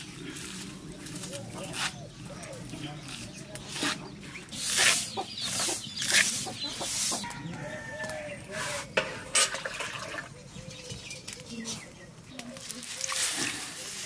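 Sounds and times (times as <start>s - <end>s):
hens clucking: 0.7s - 10.5s.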